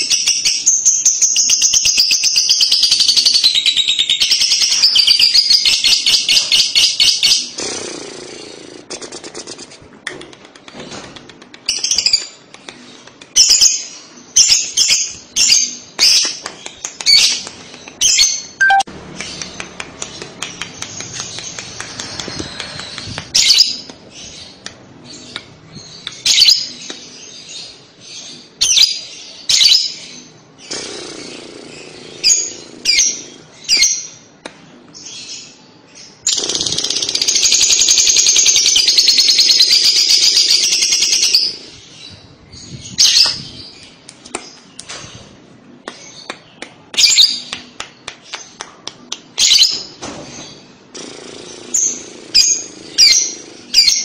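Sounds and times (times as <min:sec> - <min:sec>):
lovebird chirping: 0:17.1 - 0:20.2
lovebird rapid high trill: 0:18.6 - 0:18.9.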